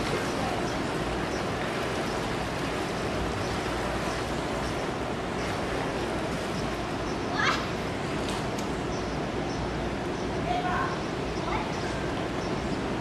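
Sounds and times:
distant ocean surf: 0.0 - 13.0
wind: 0.0 - 13.0.

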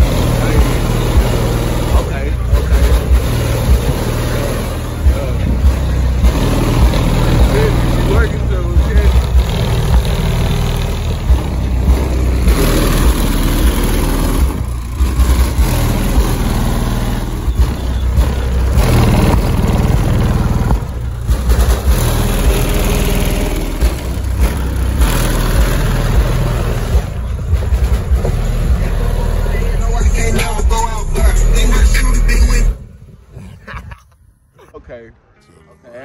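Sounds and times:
deep bass from car stereo: 0.0 - 34.9.

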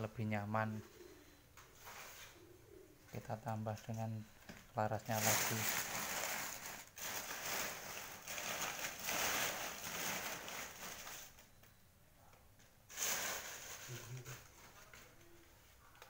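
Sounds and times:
dry leaves rustling: 5.1 - 11.3.

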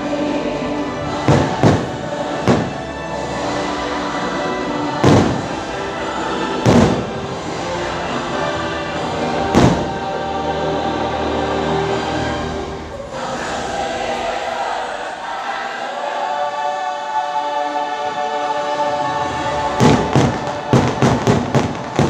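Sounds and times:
choir singing with music: 0.0 - 22.0
fireworks booming: 1.2 - 2.8, 5.0 - 5.7, 6.6 - 7.6, 9.5 - 10.0, 19.8 - 22.0.

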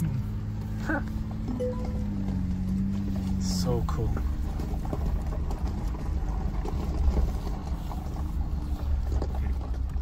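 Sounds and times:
car engine and tyres rumbling: 0.0 - 10.0.

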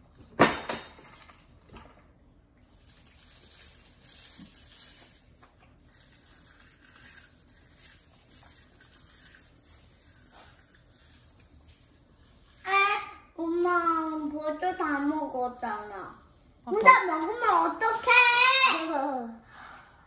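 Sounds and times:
small clatters of handling food: 0.9 - 12.7.

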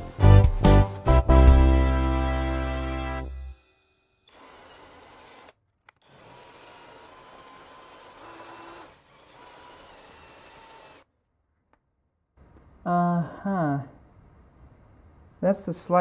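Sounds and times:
drill with wire brush on metal: 4.3 - 11.1.

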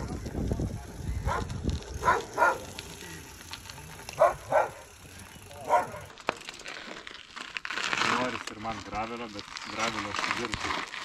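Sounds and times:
dog barking: 1.3 - 2.7, 4.2 - 4.9, 5.6 - 6.0.

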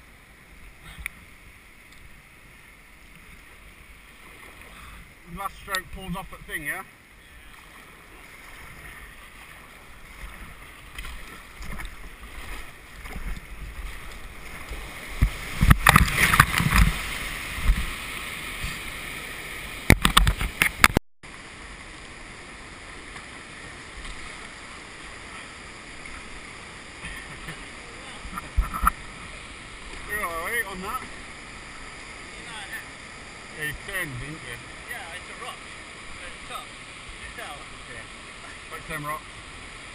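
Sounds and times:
water rushing and splashing: 0.0 - 39.9.

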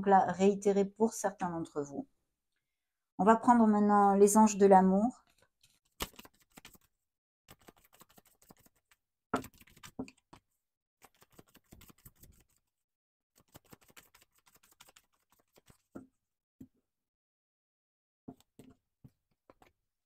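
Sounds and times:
cards being shuffled: 5.3 - 6.9, 7.5 - 10.4, 11.0 - 12.6, 13.4 - 15.9.

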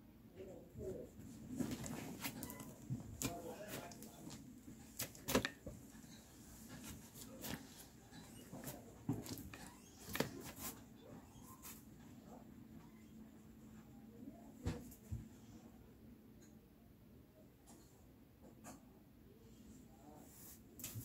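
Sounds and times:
knocks and rustles of movement: 0.8 - 12.5.

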